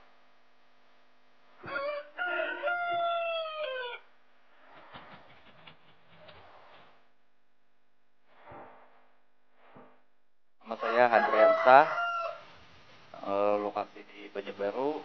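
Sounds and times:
rooster crowing: 1.6 - 4.1, 10.6 - 12.6.

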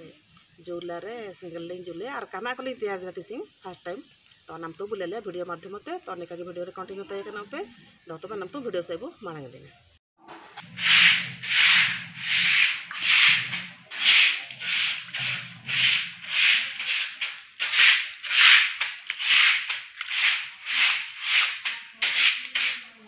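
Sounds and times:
broom scrubbing wet floor: 10.6 - 23.0.

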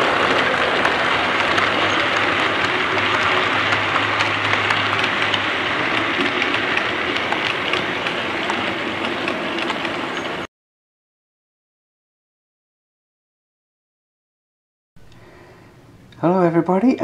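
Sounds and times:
model trains whirring on track: 0.0 - 10.5.

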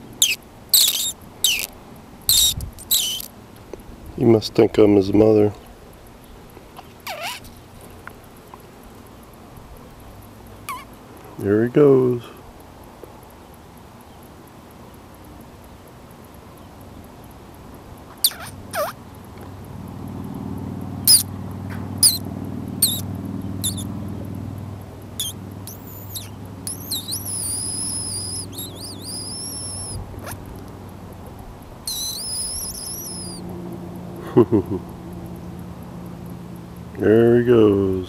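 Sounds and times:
long wavering whistles: 0.0 - 1.7, 2.3 - 3.3, 21.1 - 21.3, 22.0 - 23.9, 25.2 - 30.4, 31.8 - 33.4
high-pitched squeaky calls: 0.0 - 3.3, 7.0 - 7.6, 10.6 - 11.0, 18.1 - 19.0, 21.0 - 21.3, 22.0 - 23.9, 25.2 - 30.4, 31.8 - 33.4.

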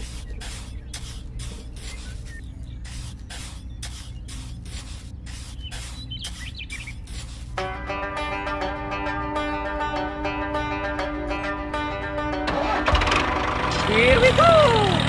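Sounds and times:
trowel scraping wet cement: 0.0 - 7.7.

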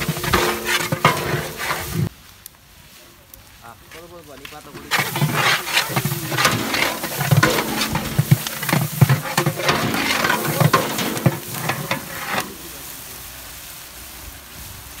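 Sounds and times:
metal ladle scraping a pot: 0.0 - 2.1, 4.7 - 12.9
sizzling in hot oil: 0.0 - 15.0.

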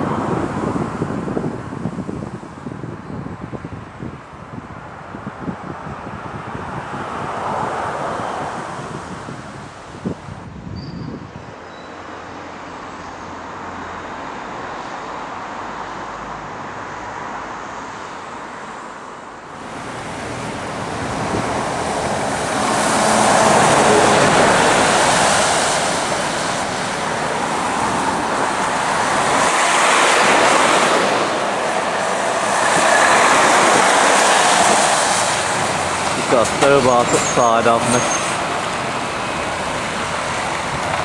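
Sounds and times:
wind on microphone: 0.0 - 11.8, 19.6 - 41.0
lorry engine noise: 19.5 - 41.0
tyres hissing on wet road: 19.6 - 41.0.

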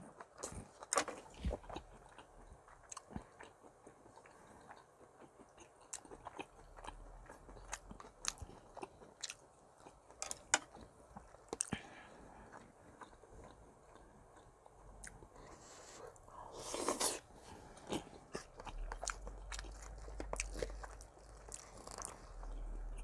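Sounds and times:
person chewing food: 0.0 - 23.0.

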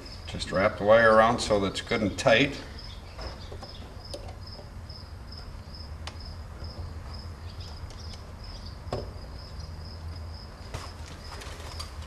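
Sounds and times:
cricket chirping: 2.5 - 12.0.

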